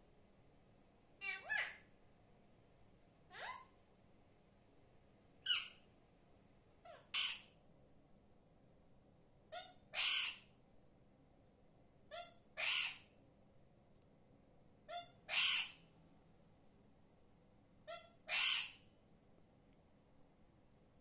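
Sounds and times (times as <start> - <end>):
parakeet harsh calls: 1.2 - 1.8, 3.3 - 3.7, 5.4 - 5.8, 6.9 - 7.5, 9.6 - 10.5, 12.1 - 13.1, 14.9 - 15.8, 17.9 - 18.8.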